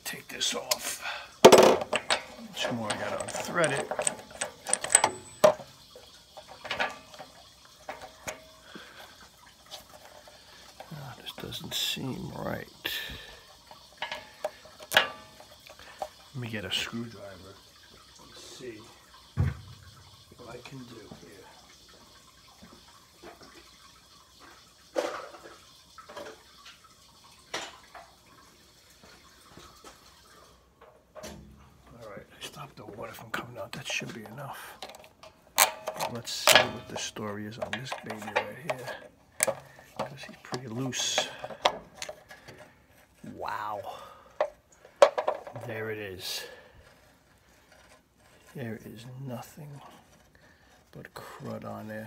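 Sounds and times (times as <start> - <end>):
water trickling from tank: 0.0 - 52.0
metallic clicks and knocks: 1.4 - 8.5, 13.8 - 16.2, 33.8 - 42.6, 44.4 - 45.7.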